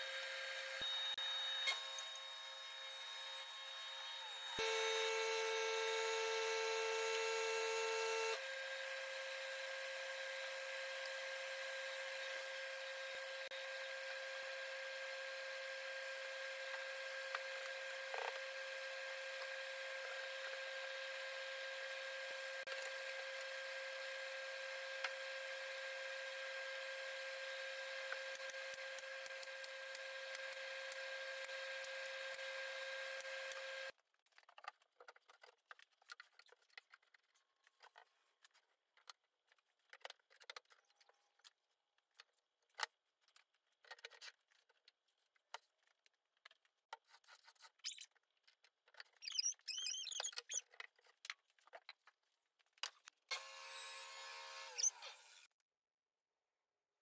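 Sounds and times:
squeaking: 49.1s - 50.7s.

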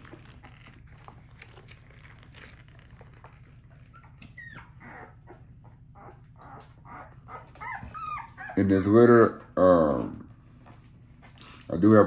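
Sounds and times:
puppies squeaking: 1.8s - 9.2s.

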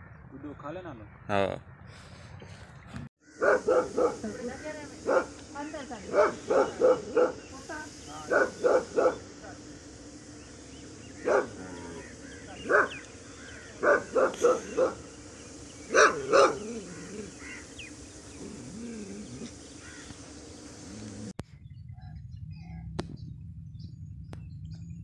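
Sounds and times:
dog barking: 3.4s - 4.4s, 5.0s - 5.4s, 6.1s - 7.5s, 8.2s - 9.3s, 11.2s - 11.8s, 12.6s - 13.0s, 13.8s - 15.1s, 15.9s - 17.2s.

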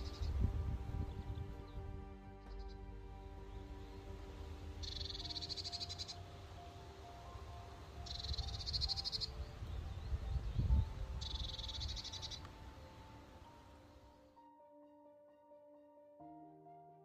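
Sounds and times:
wind rumbling on microphone: 0.0s - 5.8s, 8.0s - 13.6s
songbird trill: 0.0s - 14.3s
soft background music: 0.0s - 17.0s.

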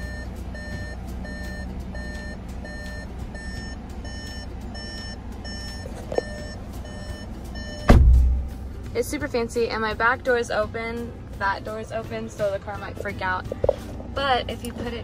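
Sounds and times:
car warning chime beeping: 0.0s - 8.4s.

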